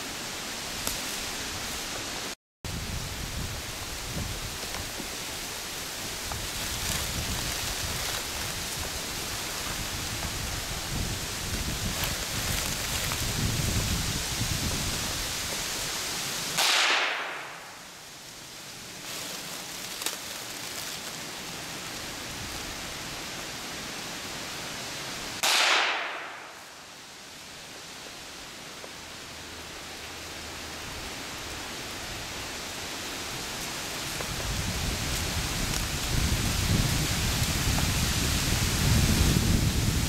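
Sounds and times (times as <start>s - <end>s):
gunshots: 16.6s - 17.7s, 25.4s - 26.6s.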